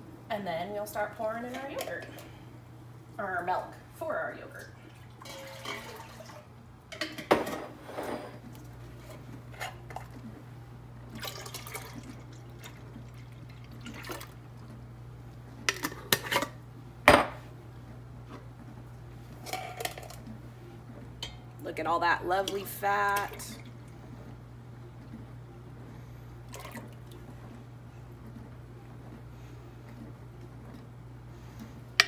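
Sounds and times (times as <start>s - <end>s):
milk pouring into a pot: 4.9s - 6.6s, 11.1s - 14.6s, 26.5s - 27.2s.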